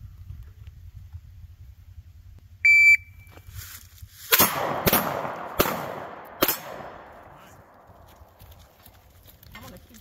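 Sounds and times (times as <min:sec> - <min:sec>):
shot timer beep: 0:02.6 - 0:03.3
gunshots with echo: 0:04.4 - 0:07.9.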